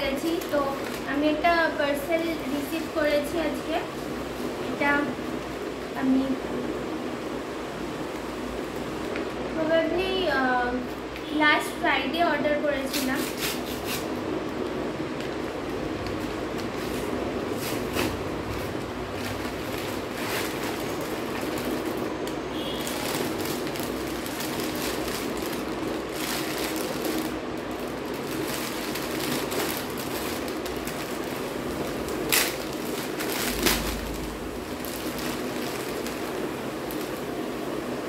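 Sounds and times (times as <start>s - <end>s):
packaging rustling and crinkling: 0.0s - 5.1s, 12.9s - 37.9s
steady background hum: 0.0s - 38.0s.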